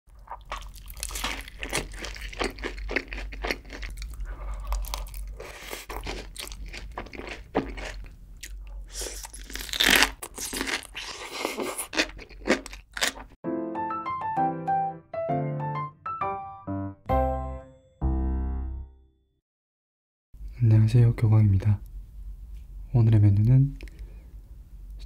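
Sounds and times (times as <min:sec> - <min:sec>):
crunchy biting and chewing: 0:00.2 - 0:13.4
loud crisp crunch: 0:00.3 - 0:13.4.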